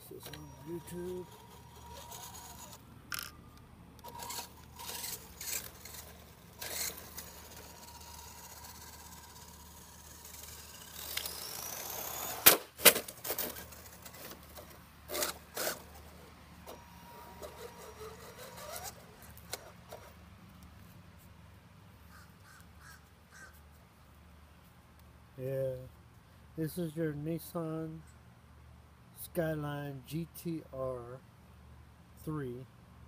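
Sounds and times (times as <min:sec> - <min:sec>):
model car motor whining: 0:00.0 - 0:20.2.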